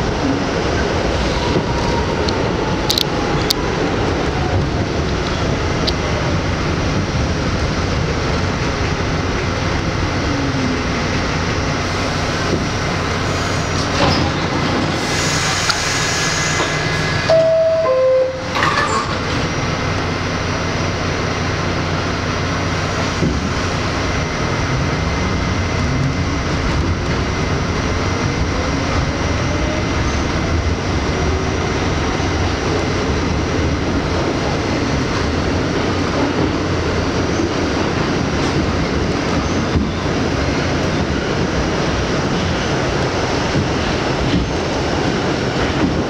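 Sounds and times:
subway doors closing: 0.0s - 46.0s
wheels rumbling on rail: 0.0s - 46.0s
two-note door chime: 17.3s - 19.1s.

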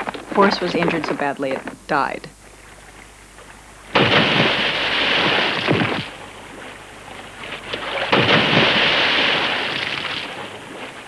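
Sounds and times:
heavy water splashes: 3.9s - 11.0s.

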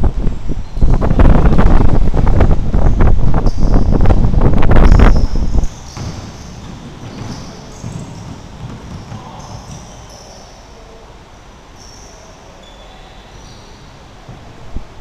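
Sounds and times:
thumps and rumble on gym floor: 0.9s - 10.3s
sneaker squeaks: 3.4s - 10.8s, 11.8s - 14.4s
basketball bouncing: 4.8s - 10.4s.

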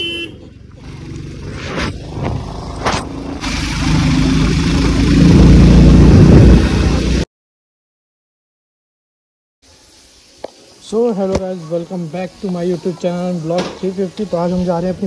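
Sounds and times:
vehicle engine running: 0.0s - 7.2s.

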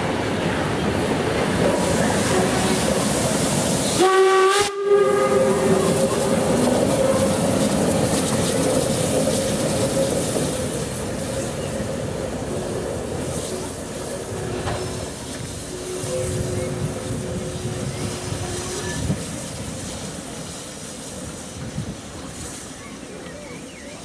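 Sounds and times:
steam engine hiss and rumble: 0.0s - 24.0s
steam whistle: 3.9s - 6.2s, 15.7s - 19.1s.

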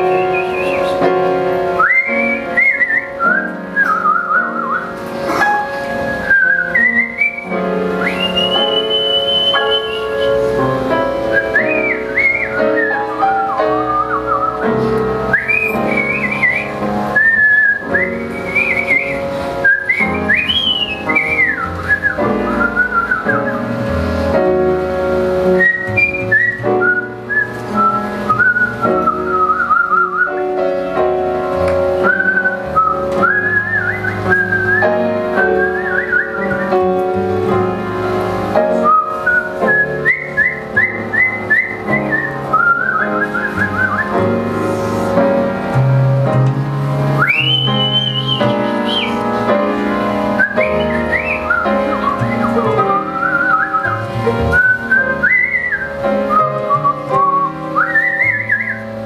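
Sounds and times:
woman whistling a melody: 0.0s - 1.0s, 1.8s - 5.0s, 6.1s - 10.5s, 11.3s - 23.8s, 25.6s - 30.4s, 32.0s - 36.9s, 38.8s - 44.3s, 47.2s - 49.2s, 50.4s - 58.9s
swing big band playing: 0.0s - 59.0s.

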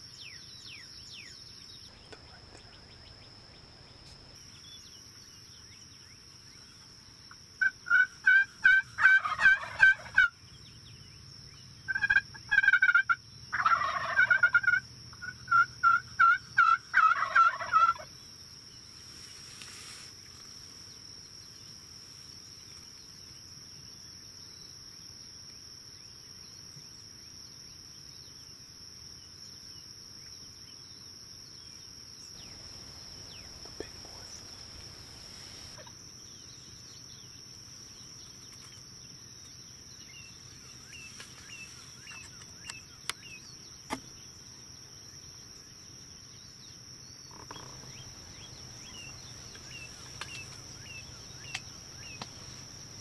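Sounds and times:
turkey gobbles: 7.6s - 10.3s, 11.9s - 18.1s
turkeys yelping: 7.6s - 10.3s, 11.9s - 18.1s.

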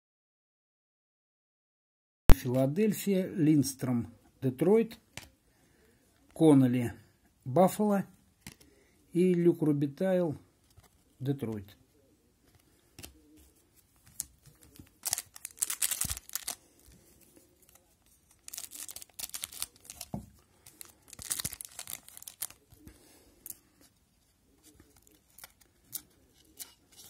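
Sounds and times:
wrapper tearing and crinkling: 14.1s - 16.9s, 17.6s - 22.8s, 25.0s - 26.0s.

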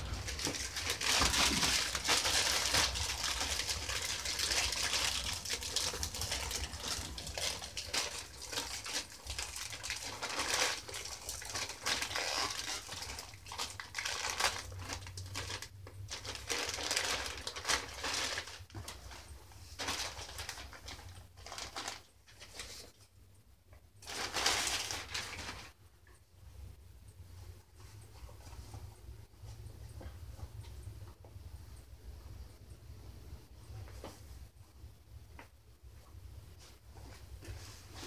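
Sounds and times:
plastic bag crinkling: 0.0s - 22.9s, 24.0s - 25.8s.

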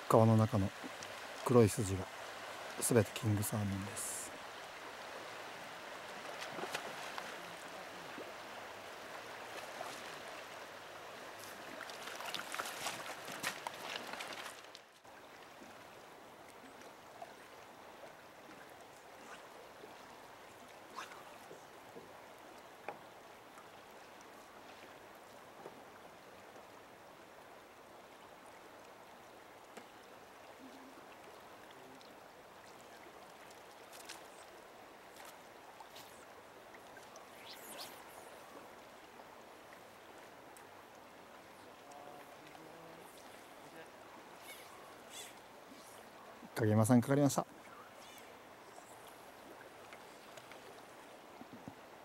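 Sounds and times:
river flowing over gravel: 0.0s - 24.6s
faint ticks: 0.9s - 1.2s, 29.6s - 30.1s.

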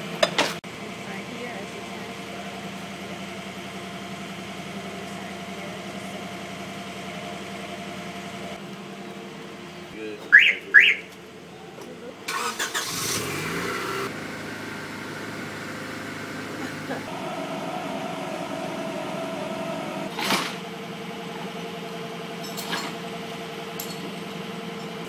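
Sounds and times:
car remote chirps: 10.3s - 11.1s
rush of noise with rising tone: 17.1s - 20.1s.

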